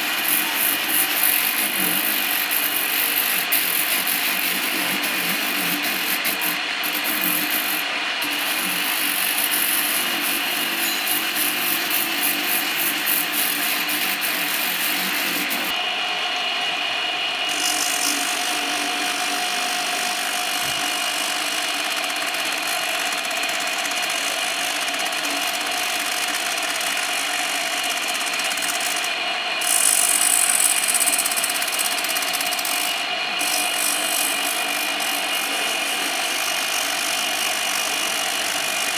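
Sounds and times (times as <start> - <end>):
abrasive disc grinding rubber: 0.0 - 15.8
wire brush wheel whining: 0.0 - 15.8, 17.5 - 38.9.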